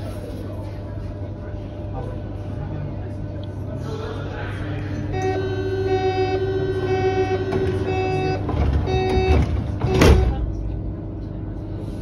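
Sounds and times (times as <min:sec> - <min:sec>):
low hum of stationary train: 0:00.0 - 0:12.0
door closing warning beeps: 0:07.5 - 0:10.4
sliding doors banging shut: 0:07.5 - 0:10.4.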